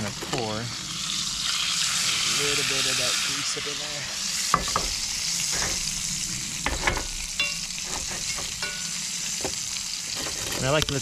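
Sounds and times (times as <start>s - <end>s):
beans sizzling in grease: 0.0s - 11.0s
utensil scraping iron pot: 4.2s - 11.0s.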